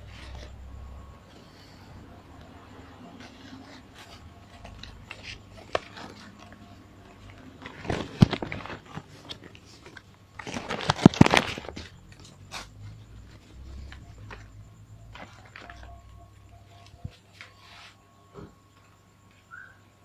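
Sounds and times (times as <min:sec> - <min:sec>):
plastic bag crinkling: 0:07.2 - 0:12.3.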